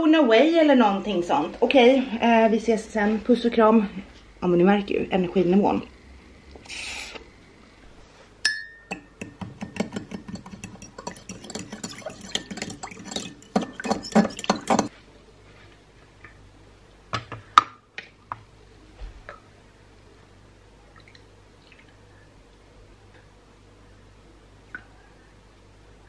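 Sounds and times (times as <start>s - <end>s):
spoon stirring in ceramic mug: 8.5s - 14.9s.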